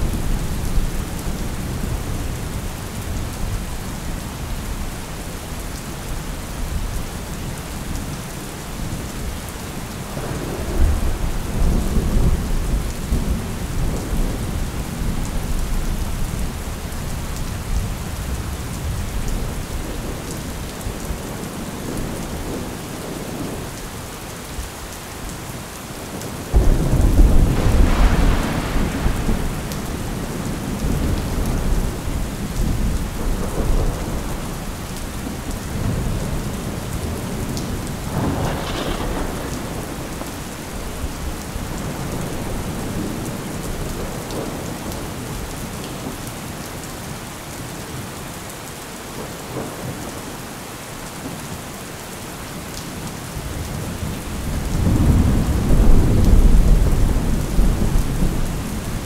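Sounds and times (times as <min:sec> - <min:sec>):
steady rain: 0:00.0 - 0:59.0
thunder rumbling: 0:10.1 - 0:15.6, 0:26.5 - 0:45.5, 0:53.8 - 0:59.0.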